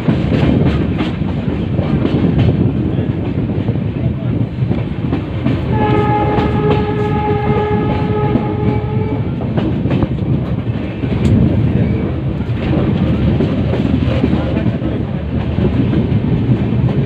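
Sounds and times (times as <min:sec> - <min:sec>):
train wheels clacking over rail joints: 0:00.0 - 0:17.0
train horn: 0:05.7 - 0:09.4.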